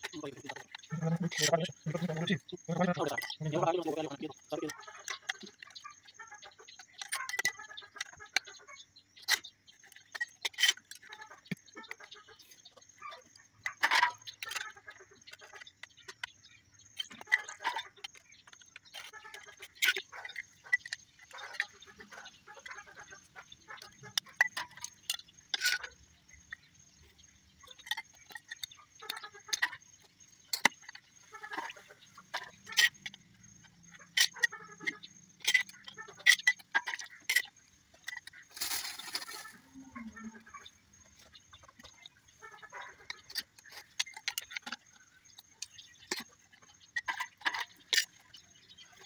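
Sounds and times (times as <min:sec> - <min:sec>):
scraping rustle: 0:38.0 - 0:40.6.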